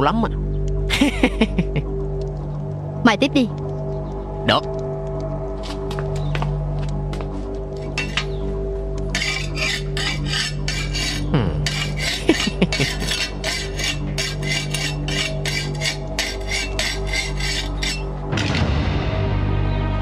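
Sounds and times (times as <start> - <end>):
rhythmic rasping strokes: 7.7 - 18.6.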